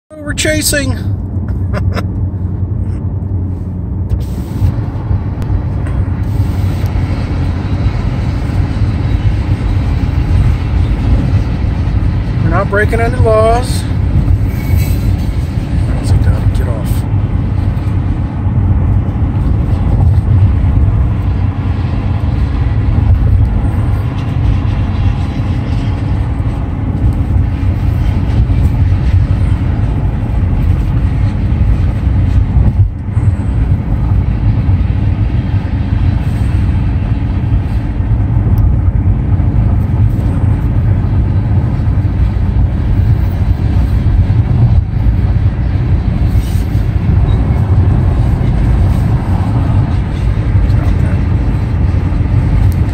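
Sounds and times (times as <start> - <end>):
car road and engine rumble: 0.1 - 52.9.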